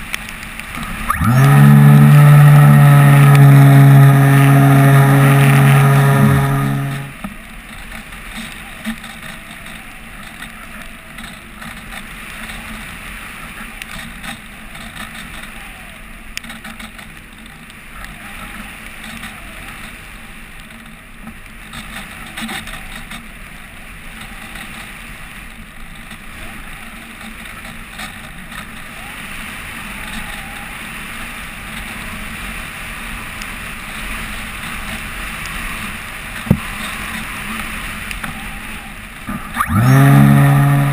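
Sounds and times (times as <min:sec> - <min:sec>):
light ticks: 0:00.0 - 0:01.2
motor whine: 0:00.8 - 0:07.2, 0:39.3 - 0:40.9.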